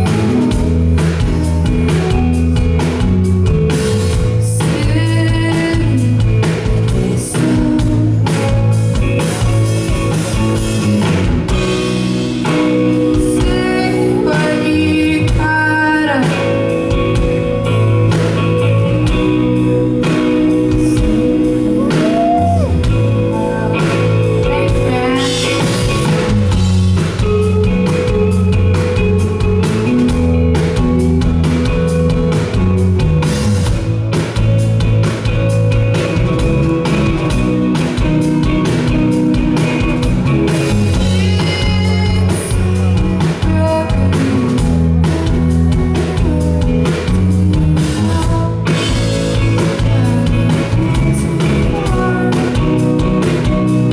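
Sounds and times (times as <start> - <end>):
woman singing: 0.0 - 3.0, 4.4 - 8.9, 12.4 - 18.4, 19.0 - 26.2, 40.9 - 53.9
rock band playing: 0.0 - 53.9.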